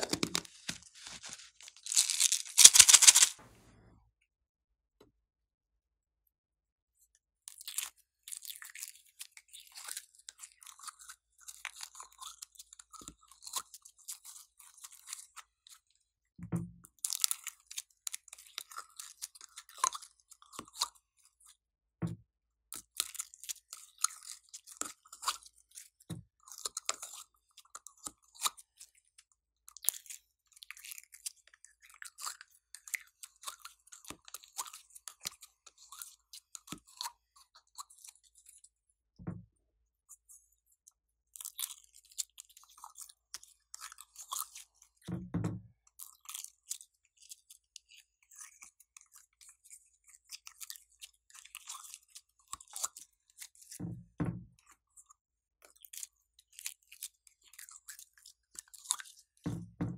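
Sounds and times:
slime crackling and popping: 0:00.0 - 0:03.3.

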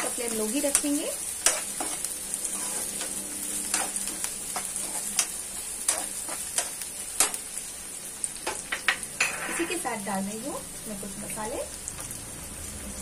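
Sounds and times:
spoon scraping against pan: 0:00.0 - 0:07.4, 0:08.4 - 0:09.8
onion sizzling in hot oil: 0:00.0 - 0:13.0.

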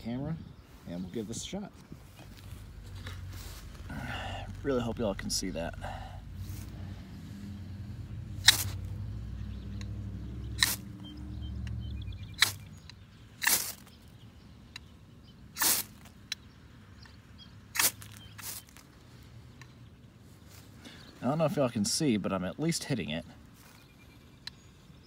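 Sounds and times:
knife scraping ferro rod: 0:13.4 - 0:13.9.

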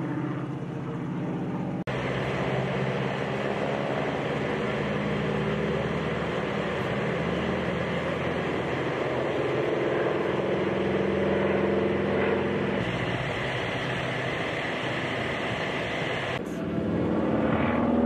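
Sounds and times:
propeller plane engine droning: 0:00.0 - 0:18.0.

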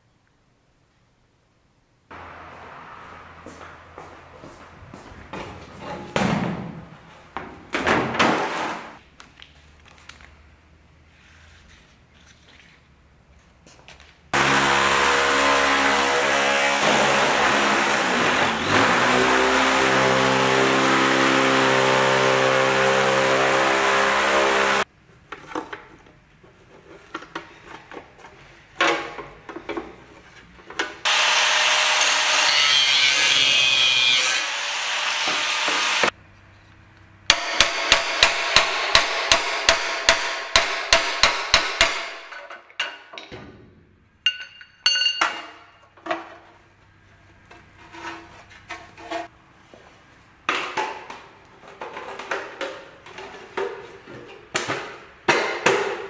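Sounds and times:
rhythmic sawing strokes: 0:31.1 - 0:36.1.

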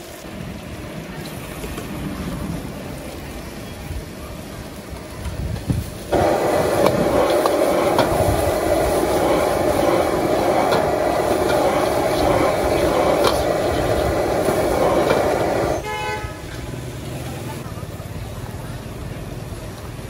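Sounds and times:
gas flame rushing: 0:04.8 - 0:16.2.

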